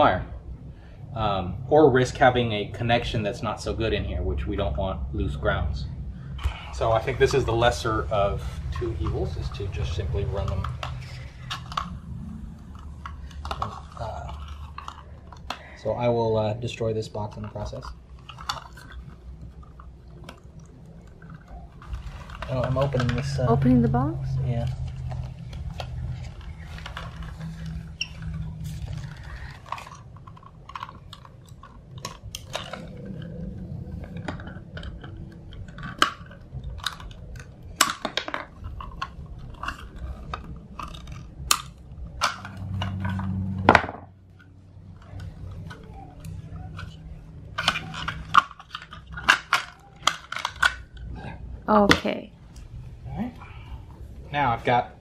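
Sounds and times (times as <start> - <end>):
handling clatter: 6.4 - 52.6
plastic cracking and snapping: 24.6 - 51.1.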